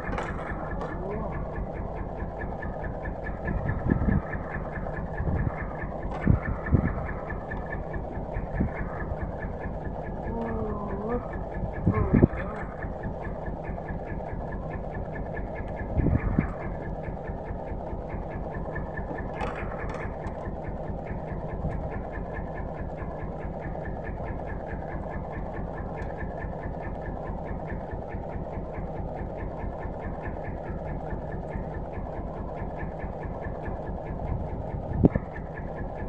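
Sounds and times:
boat engine idling: 0.0 - 36.0.

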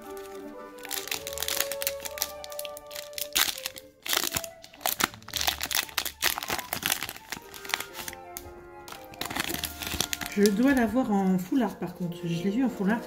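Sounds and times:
foil wrapper crinkling: 0.0 - 11.4
faint background music: 0.0 - 13.0.

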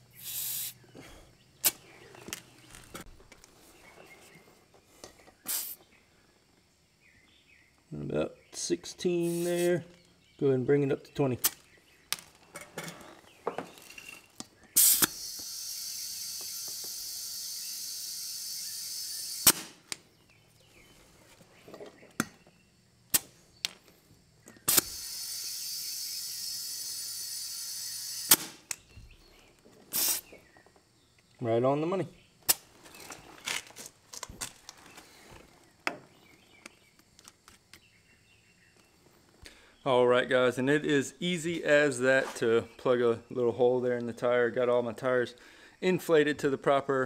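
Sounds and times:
compressed air hissing into tire: 0.0 - 0.9, 5.4 - 5.9, 9.2 - 9.8, 14.8 - 19.8, 24.6 - 28.7, 29.9 - 30.4.

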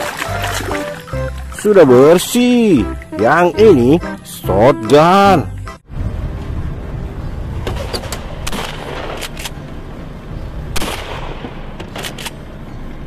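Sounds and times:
low rumble: 5.5 - 11.8
shotgun shots: 10.8 - 12.1.

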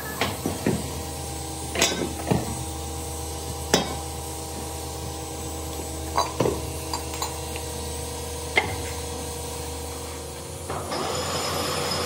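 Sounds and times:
steady hum: 0.0 - 11.6
metal clanks of motor housing: 1.7 - 2.6, 3.7 - 4.1, 8.5 - 9.0.

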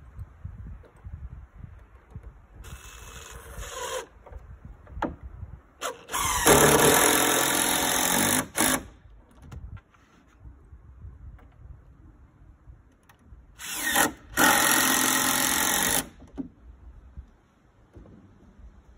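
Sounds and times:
cordless drill driving screws: 2.6 - 4.2, 5.8 - 8.9, 13.6 - 16.2.

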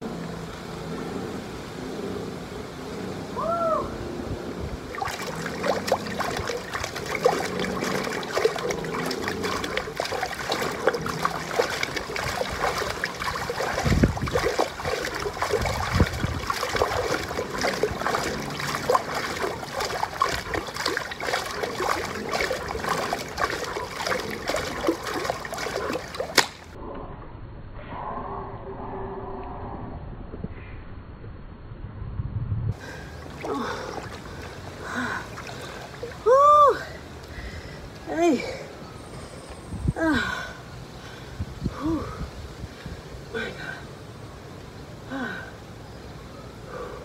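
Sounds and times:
water splashing in pool: 4.8 - 26.8, 32.8 - 37.3.

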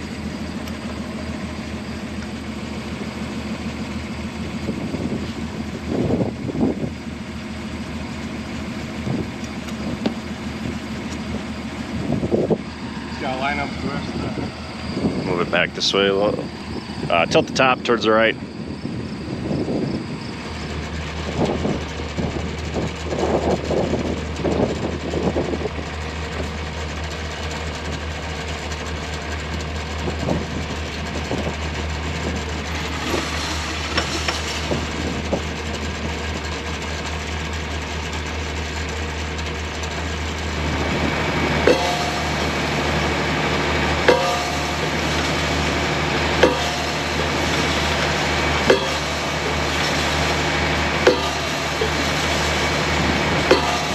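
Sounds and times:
tractor diesel engine running: 0.0 - 53.9
hammer striking wooden post: 46.4 - 50.0.

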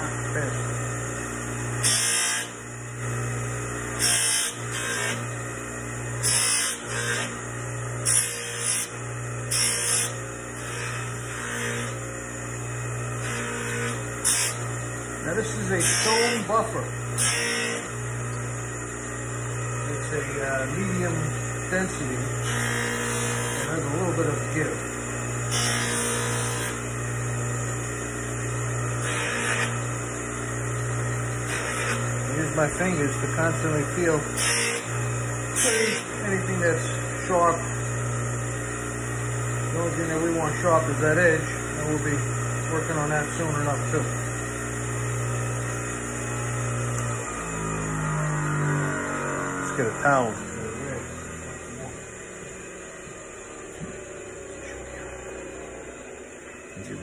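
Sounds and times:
buffing machine motor hum: 0.0 - 57.0
metal hissing on buffing wheel: 35.6 - 37.7.

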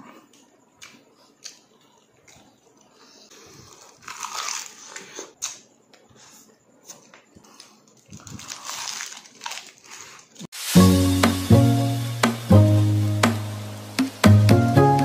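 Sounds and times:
crunching and chewing crispy food: 0.1 - 10.5.

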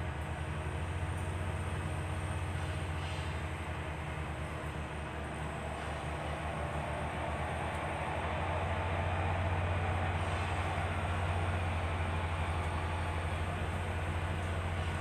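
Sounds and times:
low mechanical rumble: 0.0 - 15.0.

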